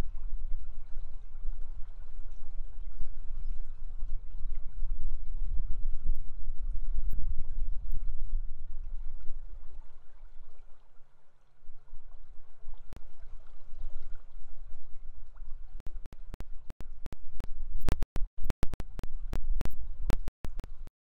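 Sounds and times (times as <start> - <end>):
sharp clicks: 16.1 - 20.7.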